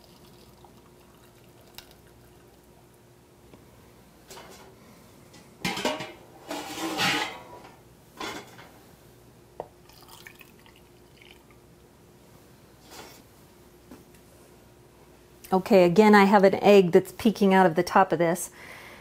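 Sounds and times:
liquid splashing into jar: 0.0s - 2.7s, 9.8s - 11.4s
faint drips: 0.0s - 2.9s.

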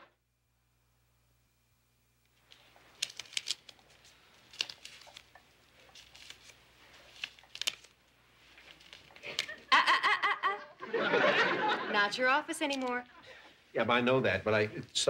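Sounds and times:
paper rustling: 2.4s - 9.9s, 12.6s - 13.1s.

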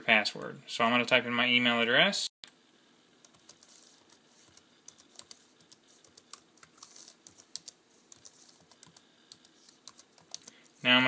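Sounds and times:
keyboard keys clicking: 4.5s - 10.6s.

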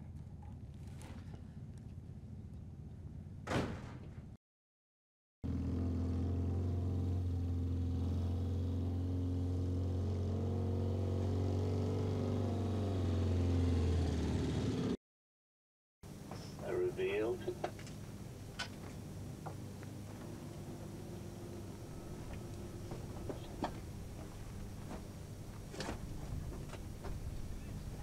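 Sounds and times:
sharp knock or slam: 3.4s - 4.0s
vehicle engine running: 5.4s - 15.0s, 16.1s - 28.0s.

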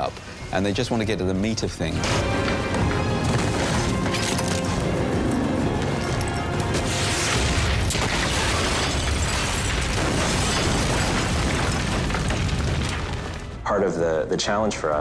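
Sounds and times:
film score music: 0.0s - 15.0s
explosion with deep rumble: 7.3s - 13.6s.

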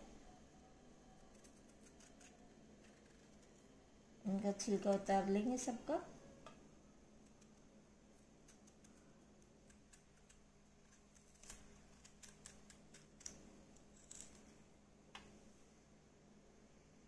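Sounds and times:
knife scraping banana peel: 1.3s - 3.6s.

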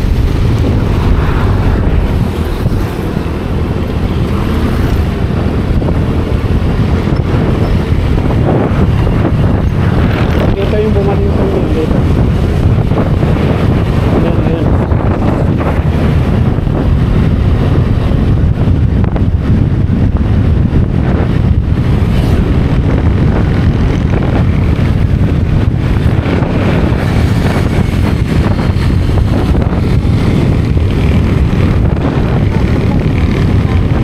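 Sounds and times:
scooter ride noise: 0.0s - 34.0s
wind buffeting microphone: 0.0s - 34.0s.

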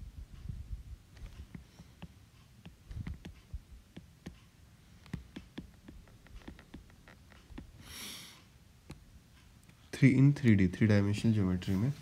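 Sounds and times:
stylus tapping on glass screen: 1.3s - 4.4s, 5.0s - 7.8s.

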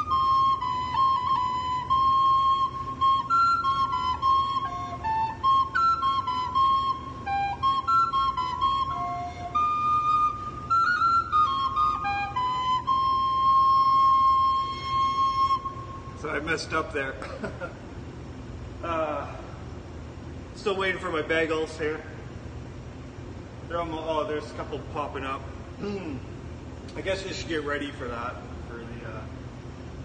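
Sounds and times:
wooden flute melody: 0.0s - 16.7s.

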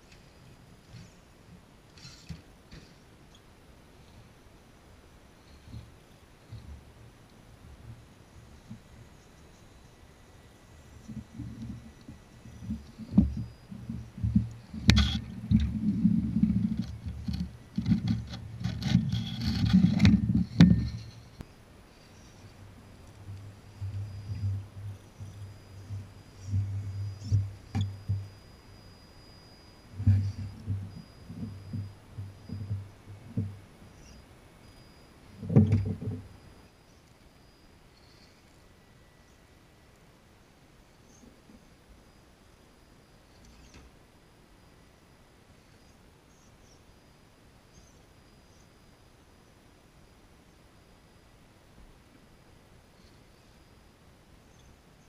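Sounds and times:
tires scraping on rocks: 11.1s - 21.4s.

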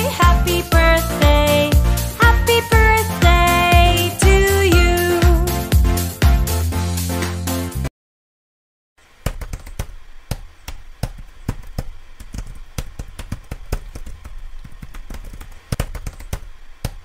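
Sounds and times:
laptop keyboard typing: 9.2s - 17.0s.

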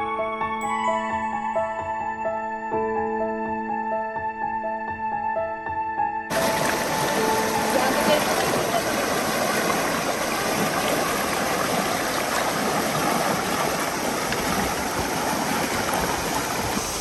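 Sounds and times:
river rapids rushing over rocks: 6.3s - 17.0s.

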